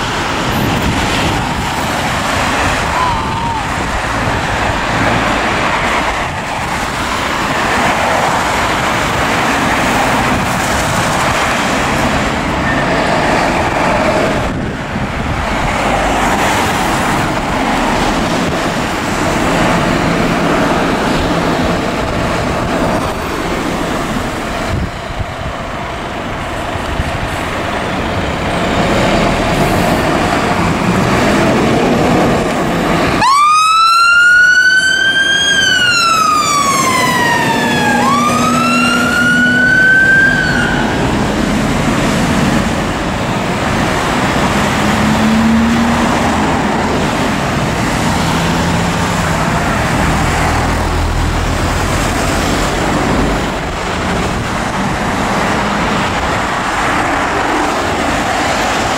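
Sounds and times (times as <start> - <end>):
road traffic: 0.0 - 58.9
siren rising in pitch: 33.2 - 41.2.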